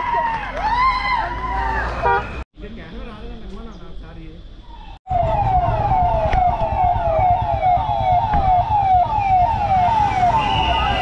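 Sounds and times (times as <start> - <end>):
low rumble of vehicles: 0.2 - 11.0
siren wailing: 4.8 - 11.0.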